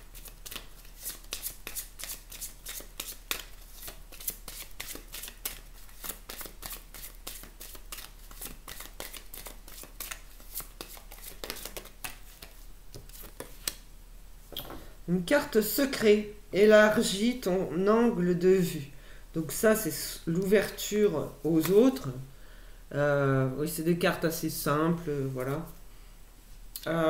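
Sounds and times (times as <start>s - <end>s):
cards being shuffled: 0.1s - 13.8s.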